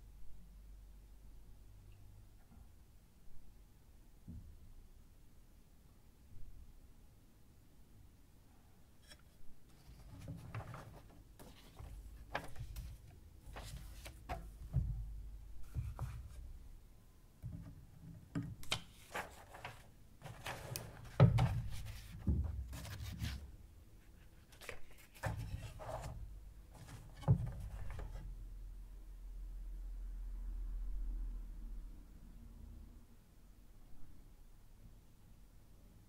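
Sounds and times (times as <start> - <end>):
papers rustling and sliding: 9.0 - 14.8, 18.6 - 23.5, 24.1 - 28.2.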